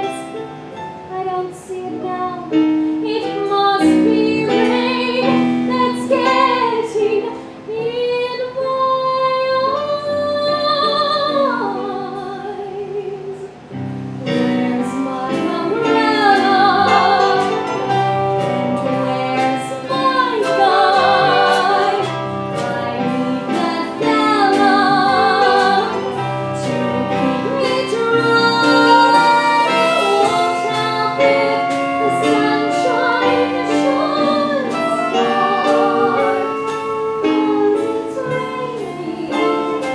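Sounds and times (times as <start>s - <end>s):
woman singing with vibrato: 1.0s - 39.9s
live band with drums: 13.8s - 39.9s.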